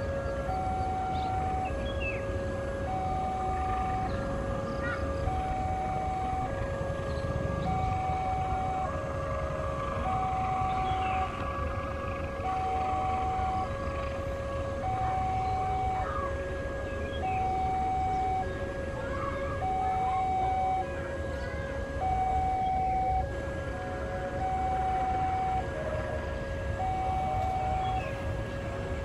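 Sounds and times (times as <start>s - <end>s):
two-tone crossing alarm: 0.0s - 29.0s.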